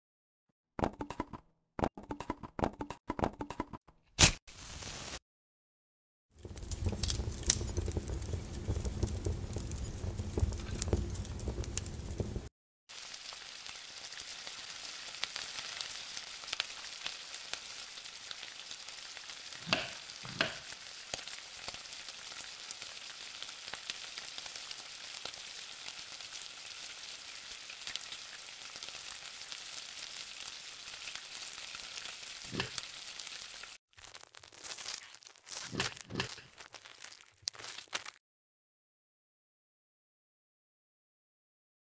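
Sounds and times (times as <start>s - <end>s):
food sizzling in oil: 4.5s - 5.2s, 6.4s - 38.2s
low rumbling crackle: 6.4s - 12.5s.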